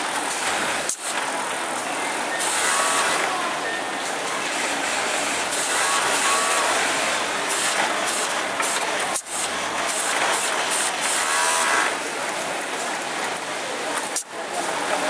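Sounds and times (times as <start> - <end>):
overlock sewing machine running: 2.4 - 12.1.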